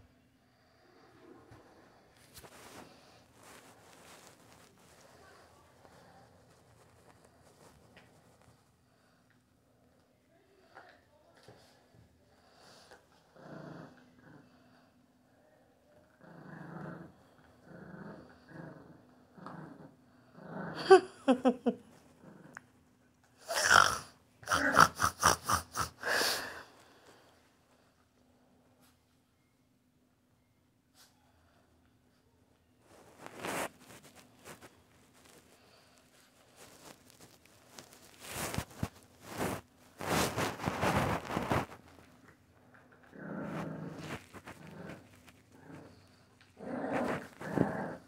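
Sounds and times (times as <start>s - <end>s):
puppy growling and huffing: 1.6s - 8.5s, 12.6s - 14.9s, 16.0s - 22.8s, 23.4s - 26.7s, 32.9s - 35.9s, 36.6s - 48.0s.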